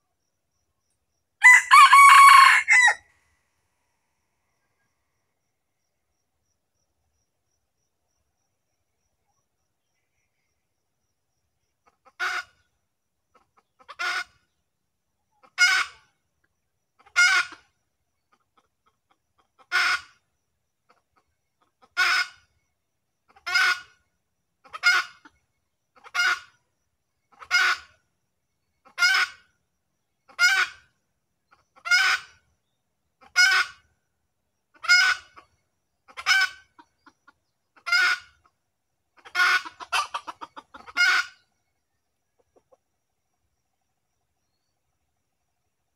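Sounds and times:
junglefowl clucking calls: 1.4 - 3.1, 11.7 - 14.6, 15.2 - 28.1, 28.7 - 29.6, 30.2 - 32.5, 33.2 - 34.0, 34.7 - 43.0.

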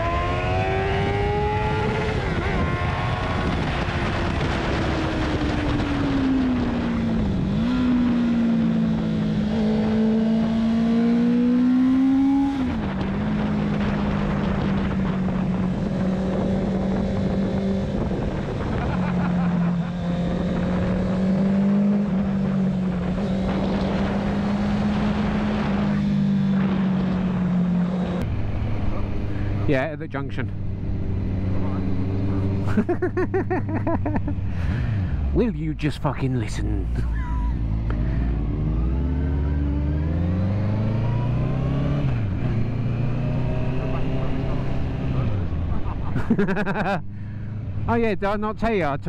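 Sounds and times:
wind noise: 0.0 - 29.7
motorcycle engine: 0.0 - 35.5, 36.9 - 48.0.

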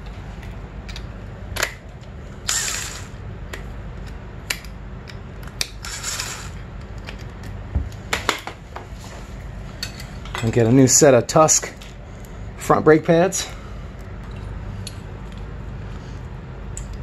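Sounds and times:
cordless drill whirring: 2.5 - 3.1.

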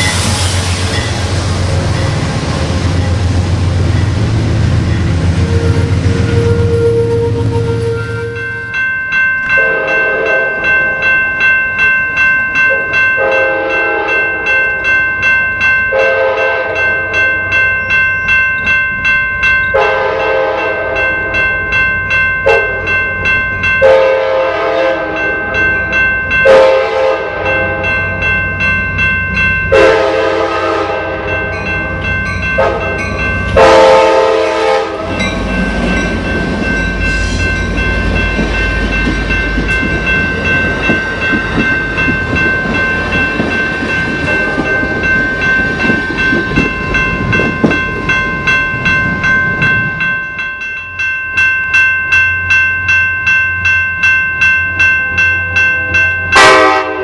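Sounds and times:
crossing warning bells: 0.0 - 57.0
train rumbling on rails: 0.0 - 57.0
locomotive horn blasts: 5.4 - 8.6, 9.6 - 10.6, 13.2 - 14.2, 15.9 - 16.9, 19.8 - 21.0, 23.8 - 25.3, 26.5 - 28.0, 29.7 - 31.5, 32.6 - 35.2, 56.4 - 57.0.

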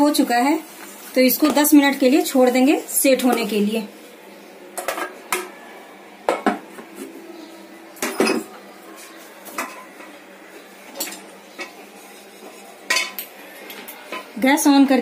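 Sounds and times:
dishes and utensils clattering: 4.8 - 5.6, 6.2 - 7.1, 8.0 - 10.2, 10.9 - 14.4.

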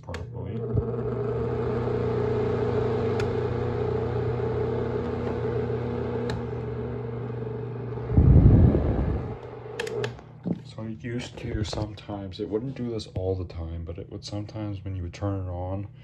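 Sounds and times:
desk fan running: 0.2 - 15.8
loud low rumble: 7.9 - 9.4.

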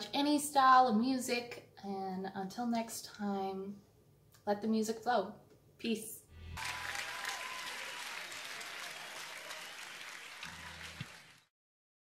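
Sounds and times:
audience applauding: 6.6 - 11.5.

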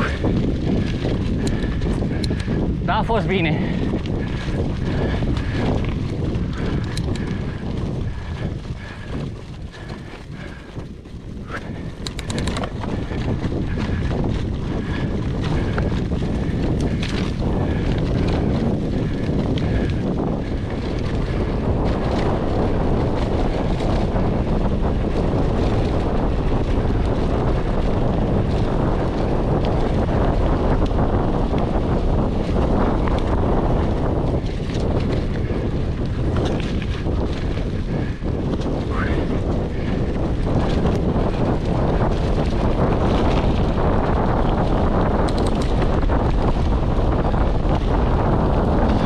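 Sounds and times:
sharp clicks and rattles: 0.0 - 26.0, 39.8 - 49.0
bike tyre and drivetrain rumble: 0.0 - 49.0
wind buffeting microphone: 0.0 - 49.0.

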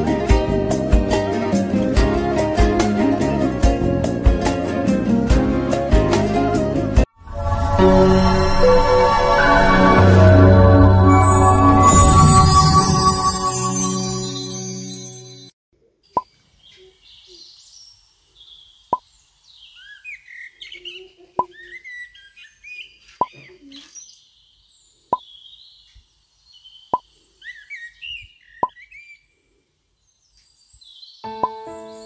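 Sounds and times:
birds chirping and trilling: 16.0 - 32.0.

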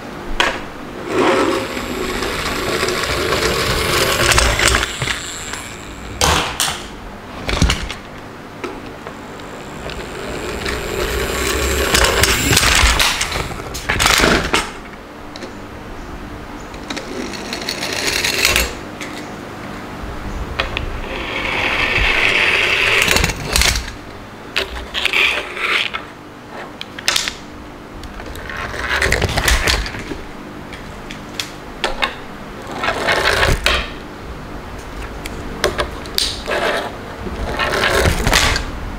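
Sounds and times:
plastic toy trucks rolling on wood: 1.0 - 6.5, 9.4 - 14.7, 16.8 - 18.8, 32.6 - 33.8, 35.8 - 38.6
toy trucks knocking and clattering: 1.7 - 6.8.

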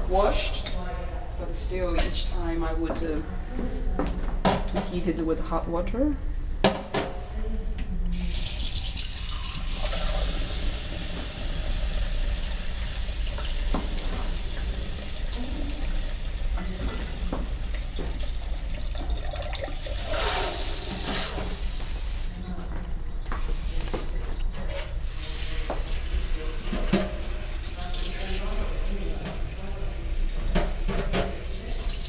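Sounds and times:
tap running into steel sink: 13.3 - 15.1
teacups clinking: 18.5 - 20.1.

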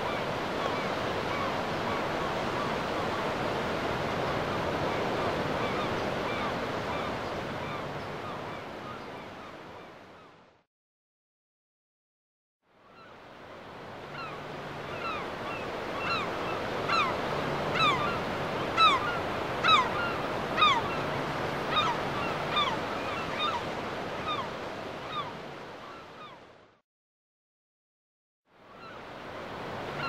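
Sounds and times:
ocean surf washing: 0.0 - 9.0.

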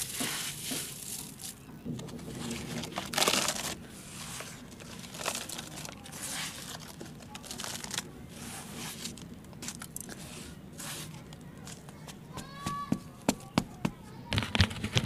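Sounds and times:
dry soil poured into plastic tub: 2.2 - 9.1.

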